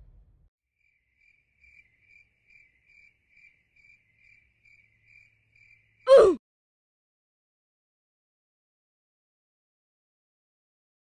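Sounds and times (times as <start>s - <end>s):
cricket chirps: 0.8s - 6.0s.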